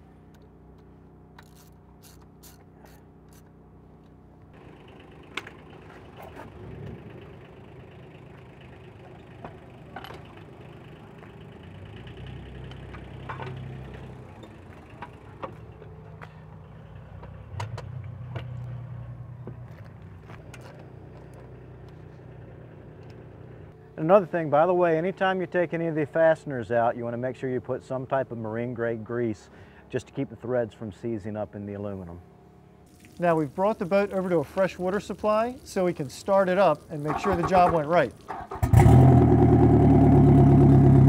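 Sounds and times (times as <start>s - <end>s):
wrench clicking: 1.4s - 3.5s.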